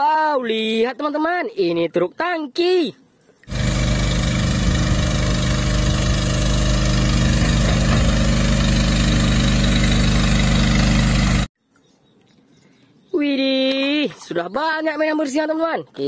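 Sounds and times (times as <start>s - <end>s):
diesel truck engine running: 3.5s - 11.5s.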